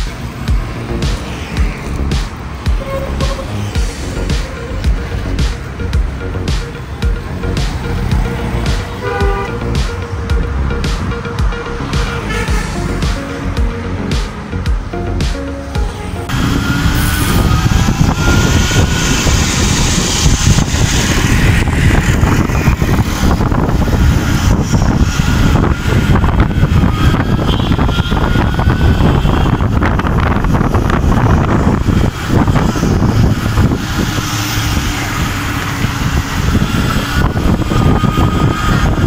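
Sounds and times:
wind and road noise: 0.0s - 39.0s
electric motor whine: 16.3s - 39.0s.

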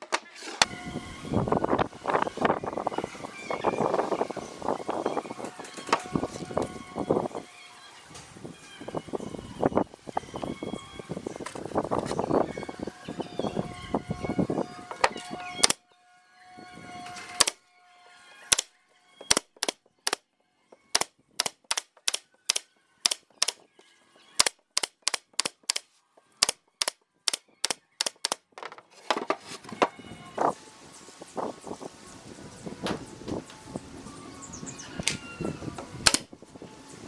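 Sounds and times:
nail gun firing into wood: 18.5s - 20.2s, 20.8s - 23.6s, 24.4s - 25.8s, 26.4s - 28.4s, 36.0s - 36.3s.

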